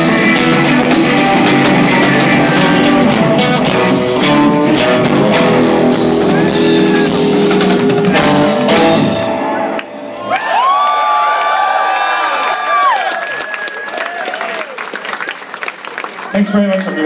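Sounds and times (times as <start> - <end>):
drum kit: 0.0 - 10.1
electric guitars: 0.0 - 10.7.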